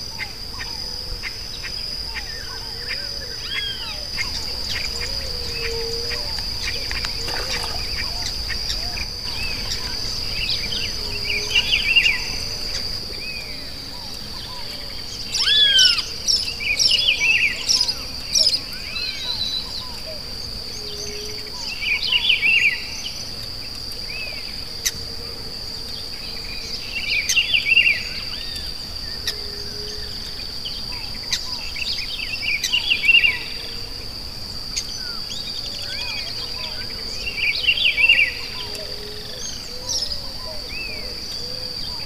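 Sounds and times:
high-pitched insect drone: 0:00.0 - 0:23.3.

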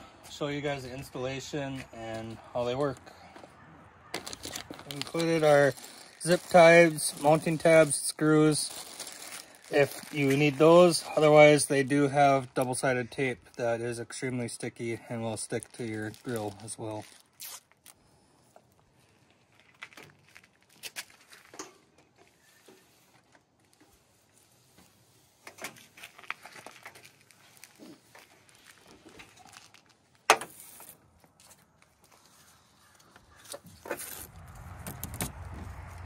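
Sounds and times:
hands handling wiring: 0:04.1 - 0:07.9, 0:18.5 - 0:36.0.

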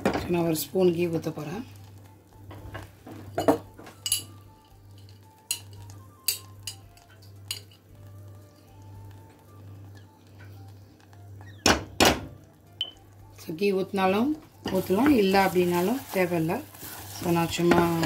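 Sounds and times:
utensil clinking against saucepan: 0:03.4 - 0:04.4, 0:05.0 - 0:07.8
loud knocks on saucepan: 0:11.6 - 0:12.3.

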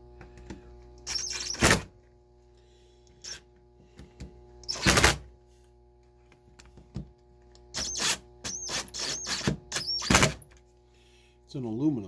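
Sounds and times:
cordless screwdriver whirring: 0:07.7 - 0:10.4.

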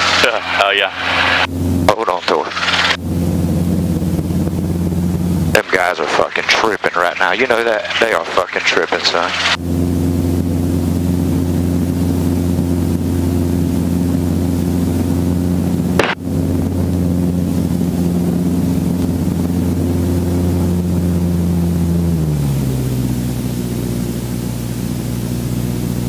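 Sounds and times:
helicopter engine and rotor: 0:00.0 - 0:26.0.

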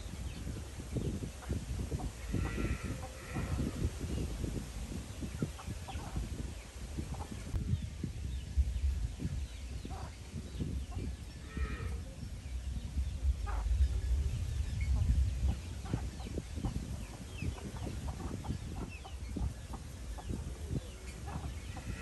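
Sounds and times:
chicks peeping: 0:00.1 - 0:04.3, 0:04.9 - 0:22.0
pecking and scratching in dirt: 0:01.4 - 0:03.8, 0:15.5 - 0:22.0
chickens clucking softly: 0:01.4 - 0:04.2, 0:05.1 - 0:07.6, 0:13.4 - 0:13.8, 0:15.0 - 0:22.0
low rumble: 0:02.0 - 0:22.0.

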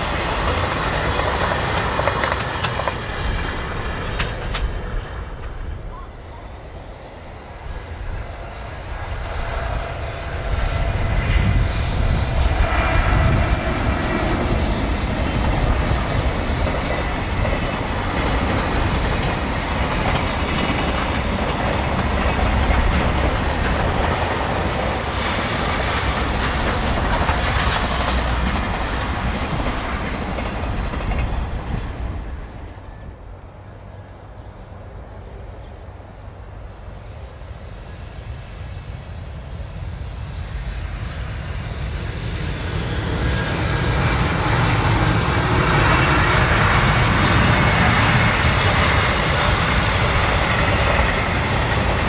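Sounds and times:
wheels clattering on rails: 0:00.0 - 0:06.0, 0:14.4 - 0:32.5
freight train passing: 0:00.0 - 0:52.0.

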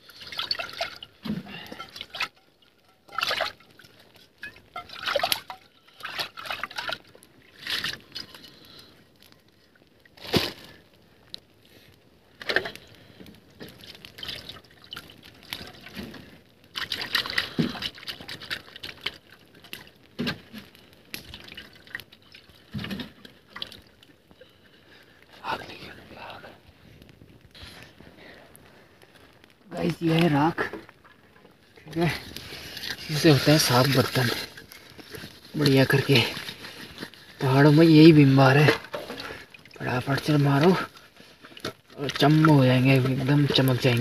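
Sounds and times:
water pouring into metal pot: 0:00.0 - 0:08.4, 0:31.8 - 0:34.8, 0:37.4 - 0:40.9
water sloshing and splashing: 0:00.0 - 0:10.8, 0:12.4 - 0:13.0, 0:13.6 - 0:24.3, 0:29.0 - 0:44.0.

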